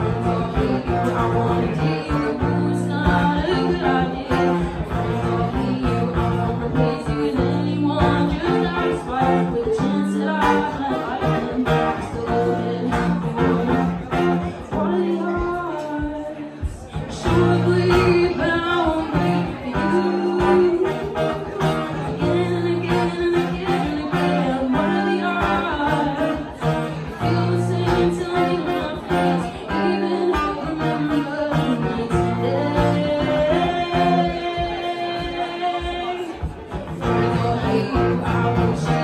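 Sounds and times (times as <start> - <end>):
acoustic guitar: 0.0 - 39.0
woman singing into a microphone: 0.0 - 39.0.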